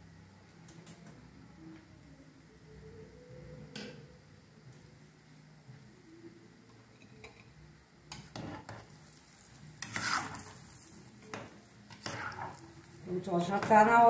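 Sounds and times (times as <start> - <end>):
oil bubbling and sizzling: 8.1 - 14.0
metal ladle scraping pot: 9.8 - 10.6, 11.9 - 12.6.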